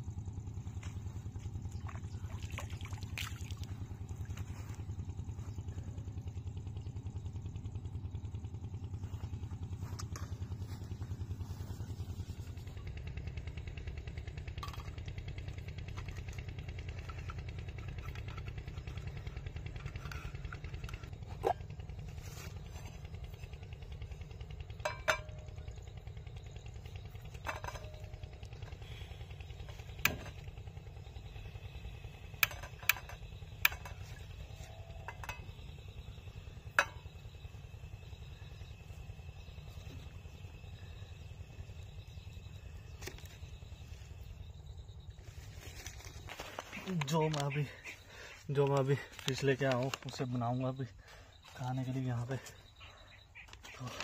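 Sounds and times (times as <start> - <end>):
metal pots and utensils clinking: 24.8 - 25.4.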